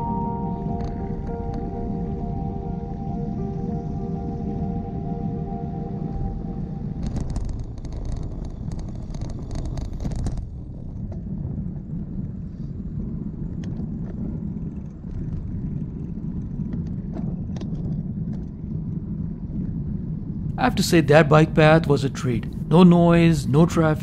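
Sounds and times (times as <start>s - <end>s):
wind and road rumble on microphone: 6.7s - 20.5s.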